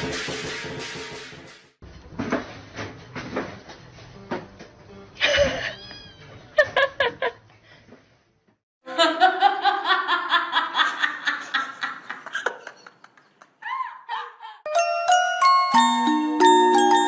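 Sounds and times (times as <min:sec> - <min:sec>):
person laughing hard: 0:05.2 - 0:05.9.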